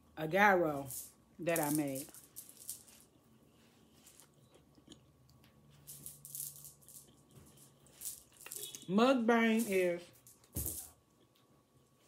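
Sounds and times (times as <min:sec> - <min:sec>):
chewing with mouth clicks: 0:04.2 - 0:05.5.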